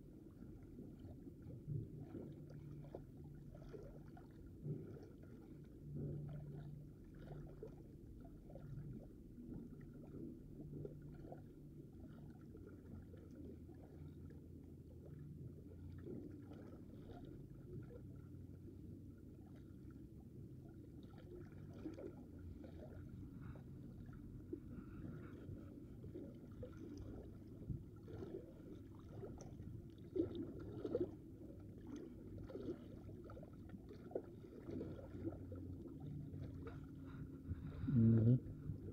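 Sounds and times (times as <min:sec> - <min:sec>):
faint hum: 0:00.0 - 0:38.9
low rumble: 0:35.8 - 0:38.9.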